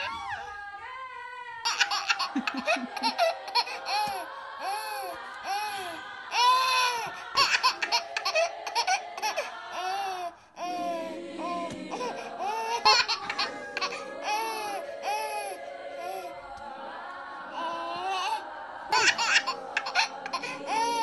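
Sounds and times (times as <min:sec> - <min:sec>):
child laughing and giggling: 0:01.7 - 0:04.3, 0:06.5 - 0:09.5, 0:12.4 - 0:15.3, 0:18.9 - 0:21.0
background music: 0:10.8 - 0:21.0.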